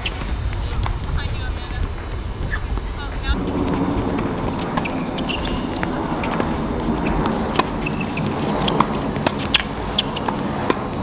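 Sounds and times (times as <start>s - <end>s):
outdoor background hiss: 0.0s - 11.0s
tennis ball bouncing: 3.4s - 11.0s
tennis racquets striking ball: 3.6s - 11.0s.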